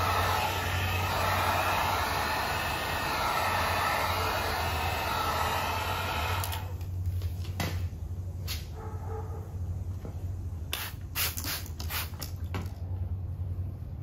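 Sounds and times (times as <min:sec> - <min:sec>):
electric blower running: 0:00.0 - 0:06.9.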